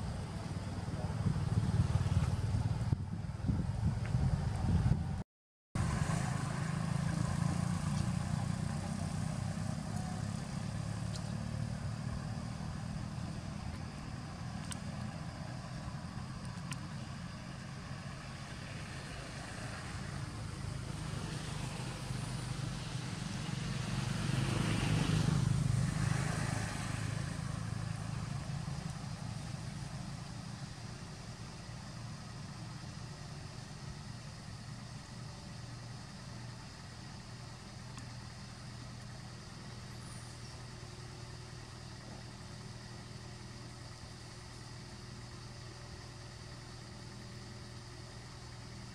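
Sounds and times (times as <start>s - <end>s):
vehicle engine humming: 0.0s - 5.2s, 5.8s - 48.9s.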